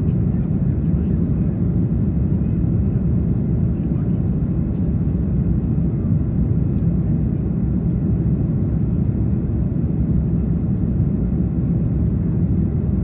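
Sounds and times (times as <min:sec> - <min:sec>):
aircraft cabin engine roar: 0:00.0 - 0:13.0.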